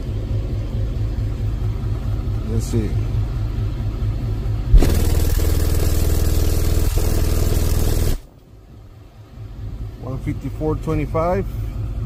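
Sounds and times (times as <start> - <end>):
loud harsh subwoofer test tone: 0.0 - 12.0.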